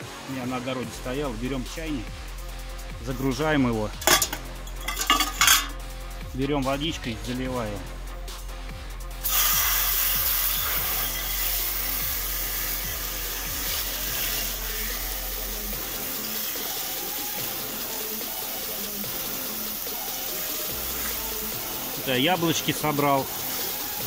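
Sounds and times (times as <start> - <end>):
hose water spraying into pot: 3.9 - 5.8, 9.2 - 24.0.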